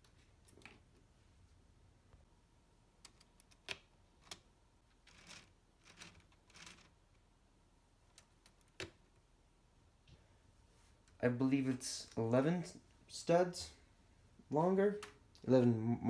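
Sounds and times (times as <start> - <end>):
soft rustles: 10.0 - 12.4.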